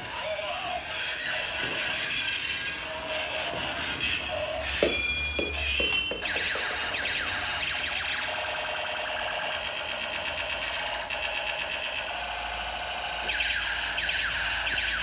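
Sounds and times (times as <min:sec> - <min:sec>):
toy siren warbling: 0:00.0 - 0:15.0.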